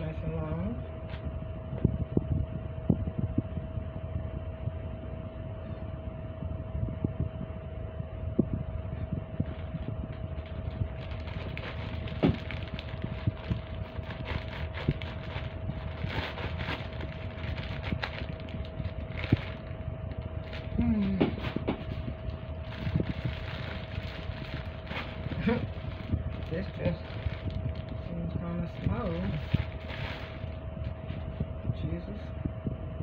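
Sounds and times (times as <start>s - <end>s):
low background hum: 0.0s - 33.0s
plastic bags crinkling: 10.3s - 30.6s.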